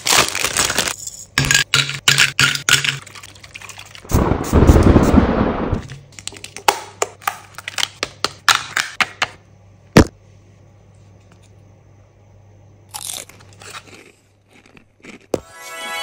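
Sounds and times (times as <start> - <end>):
foil wrapper crinkling: 0.0 - 1.0.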